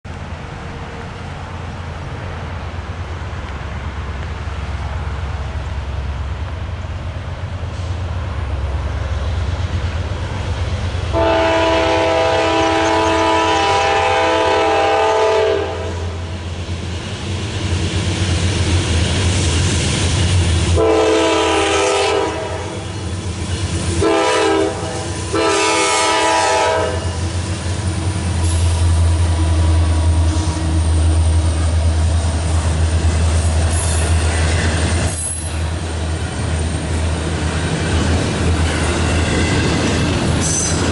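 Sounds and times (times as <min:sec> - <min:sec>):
diesel locomotive engine rumble: 0:00.0 - 0:40.9
train air horn blasts: 0:11.1 - 0:16.3, 0:20.7 - 0:23.0, 0:23.9 - 0:27.4.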